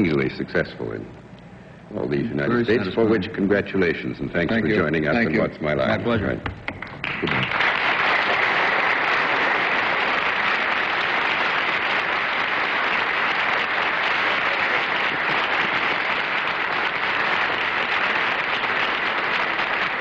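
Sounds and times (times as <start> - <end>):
studio audience applauding: 6.8 - 20.0.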